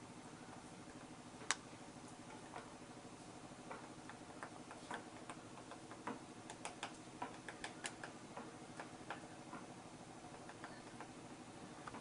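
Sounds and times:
woodpecker tapping on branch: 3.6 - 9.7, 10.3 - 11.2.

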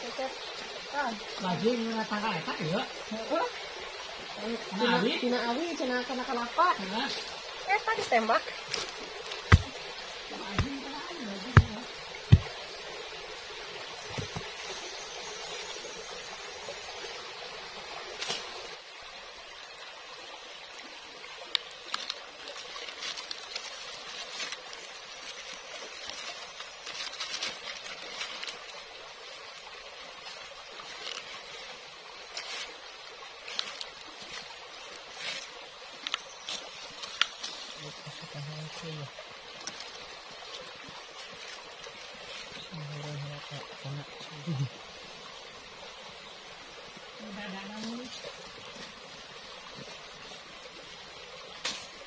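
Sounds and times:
stream trickling over rocks: 0.0 - 52.0
dry leaves and sticks rustling: 6.2 - 16.1, 18.0 - 18.8, 21.3 - 52.0
stone knocking on stone: 9.4 - 9.8, 11.5 - 12.5.

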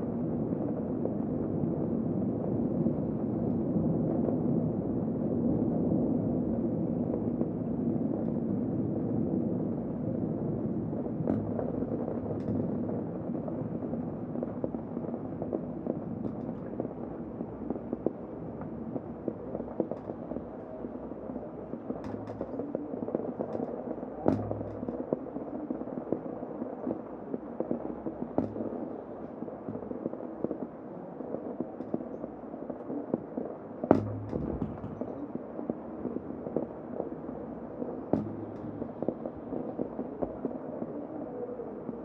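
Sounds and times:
loud knocks: 28.4 - 29.0, 29.7 - 30.0, 33.9 - 35.2, 38.2 - 39.4.

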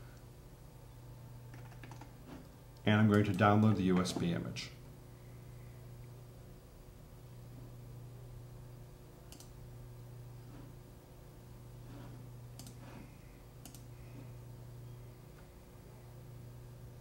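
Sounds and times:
low electrical hum: 0.0 - 17.0
computer mouse clicks: 1.5 - 2.1, 9.3 - 9.6, 12.5 - 12.8, 13.6 - 13.9.

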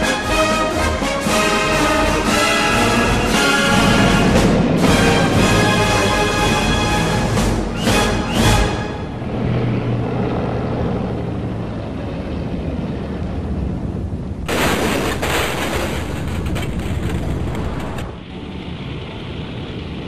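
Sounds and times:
aircraft piston engine rumble: 0.0 - 20.0.

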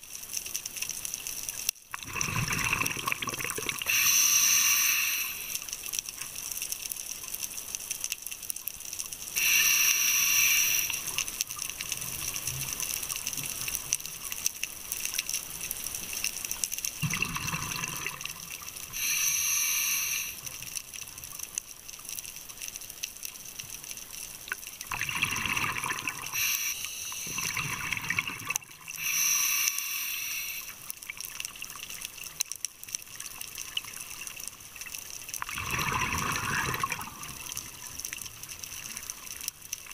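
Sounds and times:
gurgling exhaled bubbles: 1.9 - 4.0, 17.0 - 19.0, 24.9 - 29.1, 35.4 - 38.0
regulator hiss: 3.8 - 5.8, 9.3 - 11.4, 18.8 - 20.7, 26.2 - 27.7, 28.9 - 30.9.

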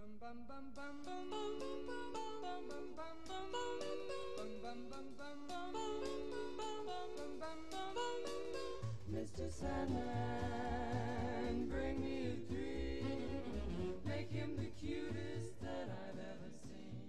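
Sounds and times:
voices singing in close harmony: 0.5 - 17.0
bass line: 8.8 - 16.1.

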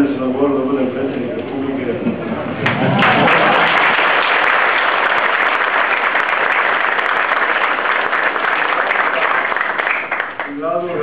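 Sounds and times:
crowd applauding: 2.6 - 10.6.

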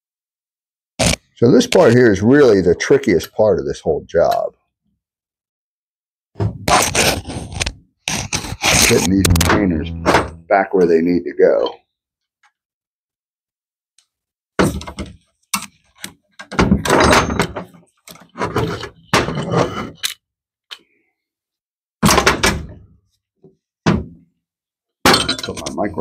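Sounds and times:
microphone being knocked and handled: 9.0 - 10.5.

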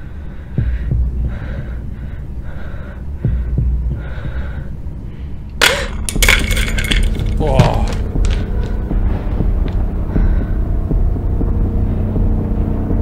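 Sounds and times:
breathing: 0.0 - 5.5, 10.1 - 10.7
low hum: 0.0 - 13.0
heartbeat double thumps: 0.5 - 2.1, 3.2 - 4.5, 7.5 - 12.4.

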